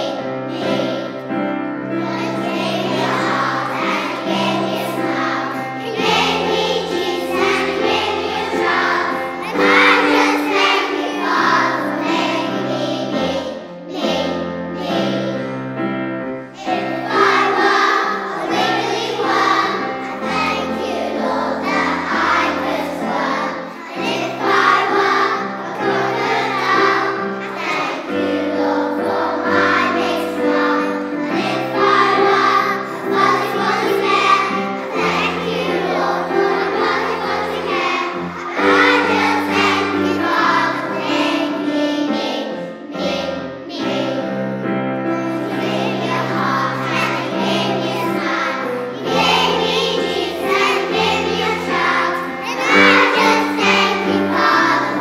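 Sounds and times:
children singing in unison: 0.0s - 55.0s.

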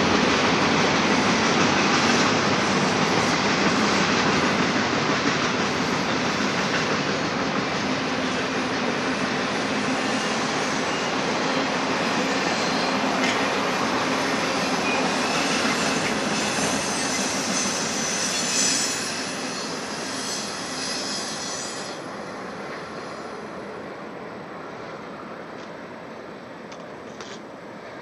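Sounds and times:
train wheels rumbling on rails: 0.0s - 28.0s
high wheel squeal: 14.4s - 22.0s.

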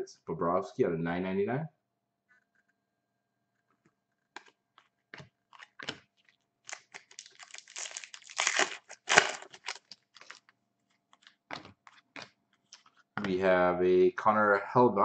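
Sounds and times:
foil pack crinkling: 5.5s - 12.1s.

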